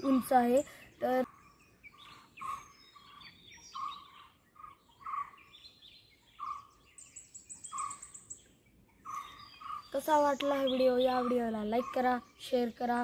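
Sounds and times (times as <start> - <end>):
birds calling: 0.0 - 13.0
high-pitched bird trill: 6.4 - 8.4, 9.0 - 13.0.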